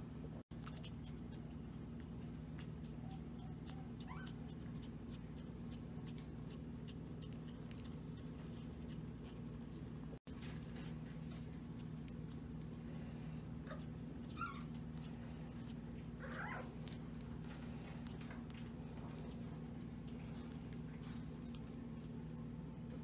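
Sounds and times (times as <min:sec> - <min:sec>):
steady low hum: 0:00.0 - 0:23.0
puppy squeak: 0:02.6 - 0:05.5, 0:13.7 - 0:14.8, 0:16.2 - 0:16.7.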